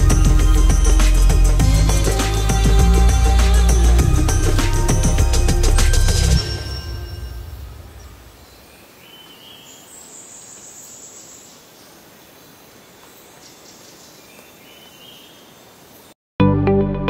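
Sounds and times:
thin high tones: 0.0s - 8.5s
faint outdoor background hiss: 6.6s - 16.2s.

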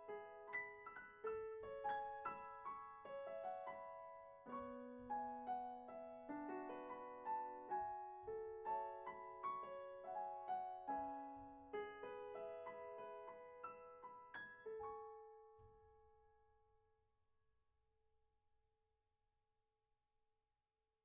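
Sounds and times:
slow gentle piano music: 0.0s - 16.8s.

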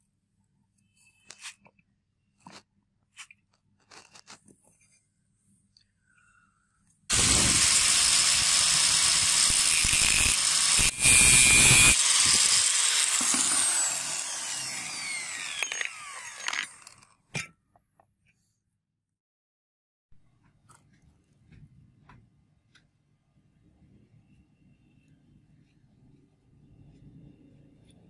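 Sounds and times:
angle grinder cutting steel: 7.1s - 17.1s.

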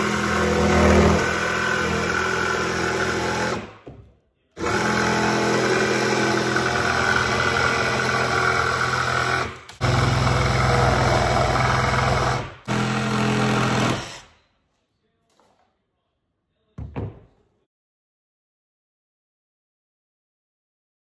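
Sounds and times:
jigsaw cutting plywood: 0.0s - 3.7s, 4.6s - 14.2s.

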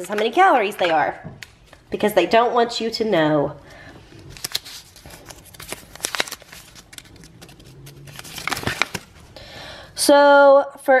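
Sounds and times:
packaging clicks and rustles: 4.2s - 9.4s.

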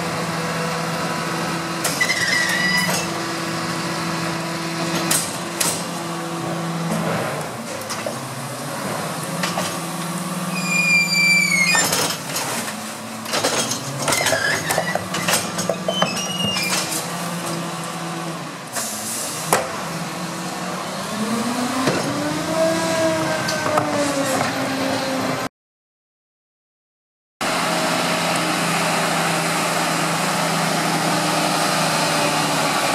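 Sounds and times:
garbage truck engine: 0.0s - 25.5s, 27.4s - 32.9s
bin lifter squeal: 1.9s - 3.1s, 10.4s - 12.3s, 13.6s - 17.1s.

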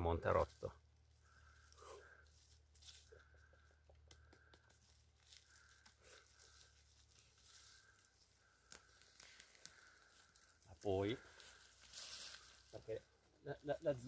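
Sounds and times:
dry leaves and twigs rustling: 0.0s - 14.0s
twig cracking: 3.9s - 10.6s.

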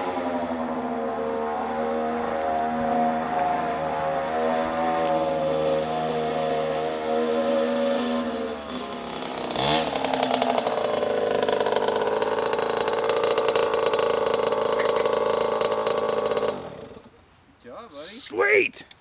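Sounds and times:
two-stroke dirt bike engine: 0.0s - 17.2s.

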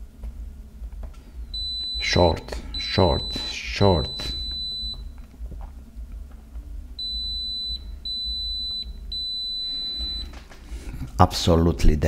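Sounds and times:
multimeter high beep: 1.5s - 5.2s, 7.0s - 10.3s.

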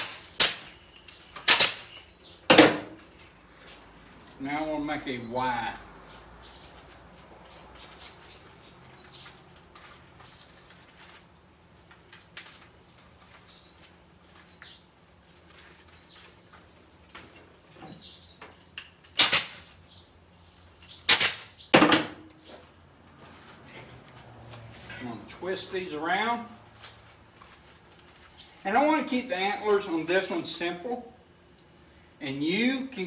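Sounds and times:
wire mesh rustling and scraping: 6.5s - 17.6s.

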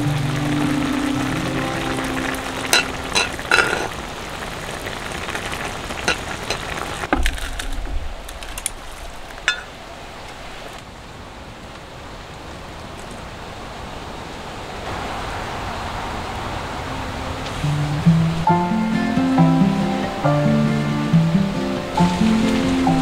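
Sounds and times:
broth boiling and bubbling: 0.0s - 10.8s.

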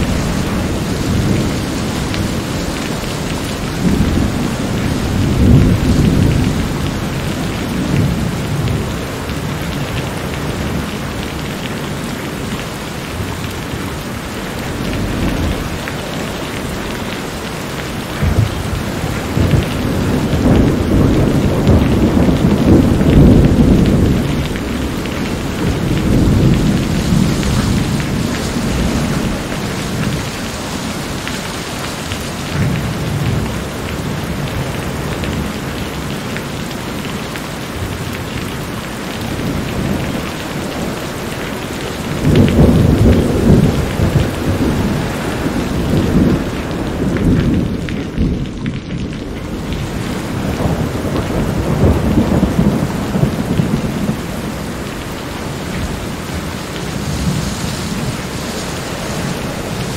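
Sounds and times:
thunder rolling: 0.0s - 9.0s, 18.0s - 31.2s, 39.3s - 55.0s
steady rain: 0.0s - 59.9s.

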